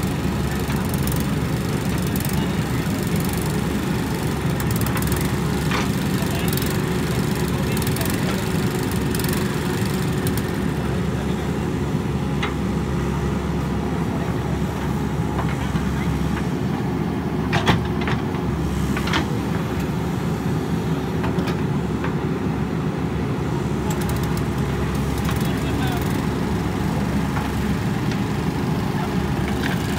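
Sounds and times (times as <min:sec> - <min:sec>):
diesel engine running under load: 0:00.0 - 0:29.9.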